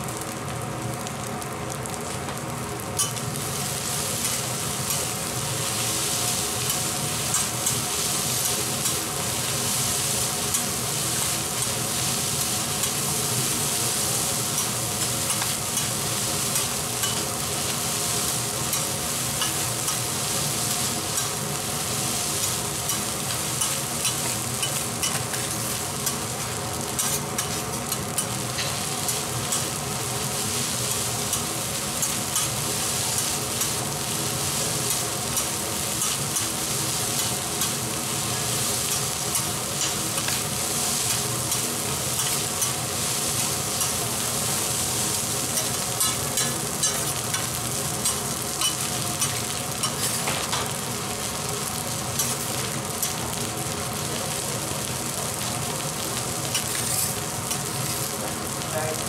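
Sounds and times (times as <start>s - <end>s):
fried rice sizzling on a griddle: 0.0s - 59.0s.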